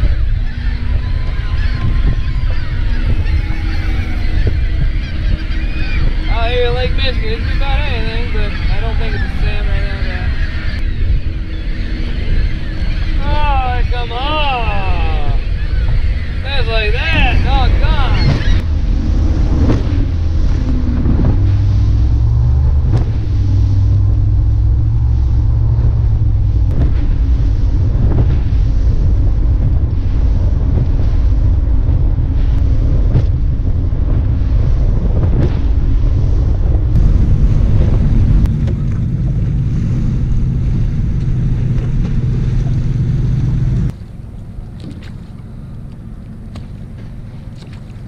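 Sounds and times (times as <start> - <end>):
hull thumping on water: 0.0 - 48.0
outboard motor drone: 0.0 - 48.0
wind buffeting microphone: 0.0 - 48.0.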